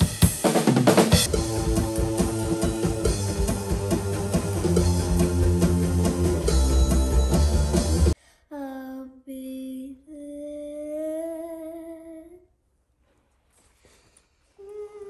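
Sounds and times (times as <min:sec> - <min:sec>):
rock music with bass and drums: 0:00.0 - 0:08.2
girl humming: 0:14.6 - 0:15.0.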